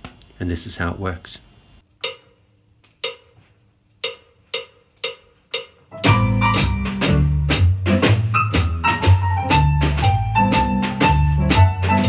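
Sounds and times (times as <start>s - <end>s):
count-in clicks: 2.0s - 6.0s
swing backing track: 4.0s - 12.0s.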